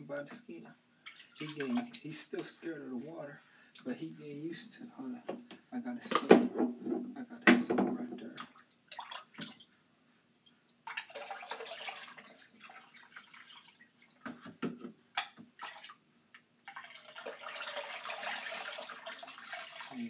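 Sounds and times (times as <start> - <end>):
water pouring from cup: 1.0 - 2.5, 10.9 - 14.2, 16.7 - 20.0
water splashing and dripping: 1.0 - 2.6, 8.3 - 9.7, 10.4 - 14.4, 15.2 - 20.0.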